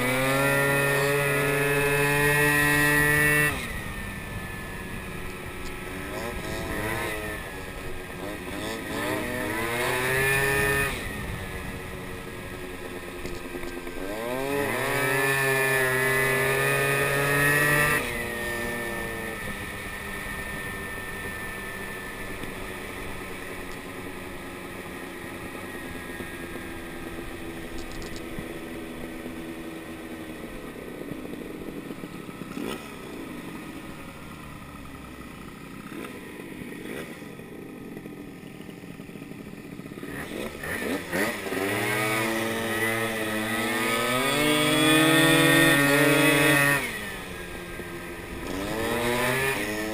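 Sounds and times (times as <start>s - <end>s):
moped engine revving: 0.0s - 49.9s.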